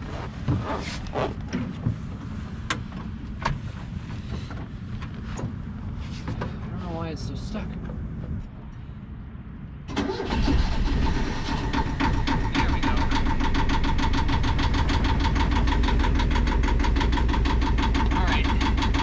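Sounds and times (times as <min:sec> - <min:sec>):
boat engine starting and idling: 0:09.9 - 0:19.0.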